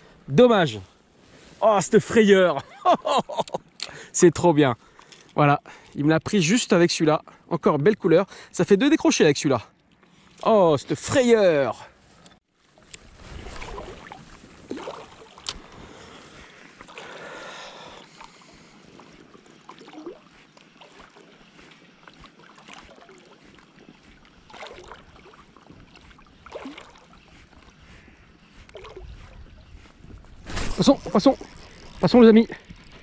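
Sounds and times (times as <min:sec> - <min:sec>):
water lapping and splashing: 0:12.6 - 0:33.0.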